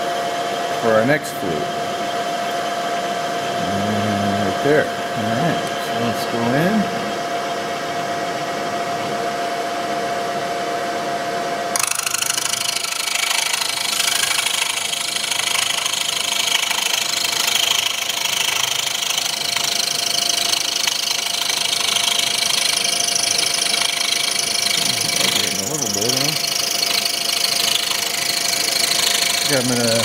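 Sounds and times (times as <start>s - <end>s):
milling machine whining: 11.7s - 30.0s
harsh plastic cutting noise: 11.8s - 30.0s.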